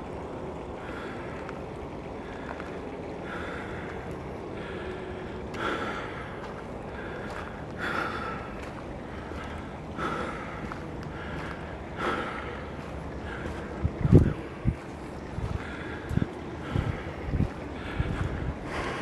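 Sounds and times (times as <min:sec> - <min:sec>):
person breathing close: 0:02.2 - 0:14.8, 0:15.4 - 0:19.0
wind rumble on microphone: 0:06.6 - 0:19.0.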